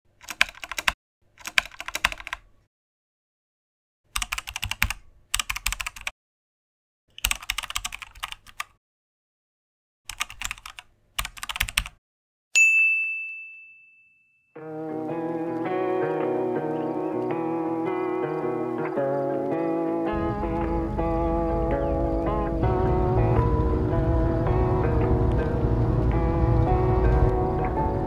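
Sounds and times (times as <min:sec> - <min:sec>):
rapid keyboard keystroke clicks: 0:00.2 - 0:02.5, 0:04.1 - 0:06.1, 0:07.1 - 0:08.8, 0:10.1 - 0:12.0
high bell-like ding: 0:12.6 - 0:14.6.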